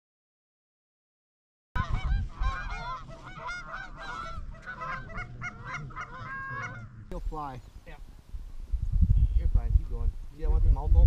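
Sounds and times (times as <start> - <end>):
geese honking: 1.8 - 7.2.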